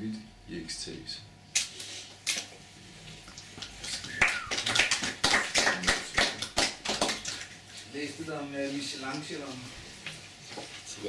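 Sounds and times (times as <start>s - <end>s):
audience finger snapping: 3.9s - 7.2s.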